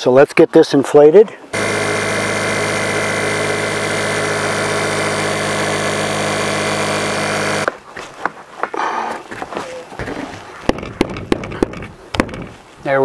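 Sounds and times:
electric air pump humming: 0:01.5 - 0:07.7.

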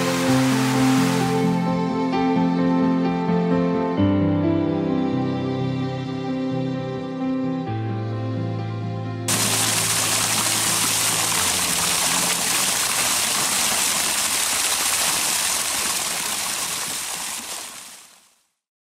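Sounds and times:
water rushing and splashing: 0:00.0 - 0:01.7, 0:09.3 - 0:18.4.

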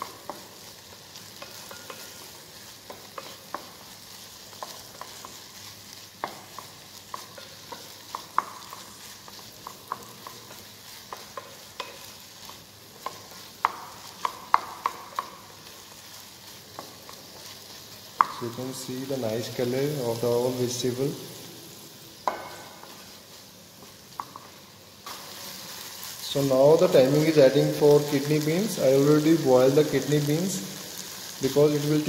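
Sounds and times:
wooden spatula scraping a pan: 0:00.0 - 0:21.0
vegetables sizzling in a pan: 0:00.0 - 0:32.0.

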